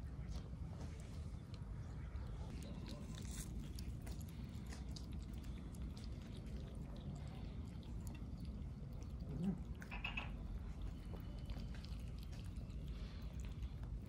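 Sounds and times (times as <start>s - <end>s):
cats chewing meat: 0.1s - 14.0s.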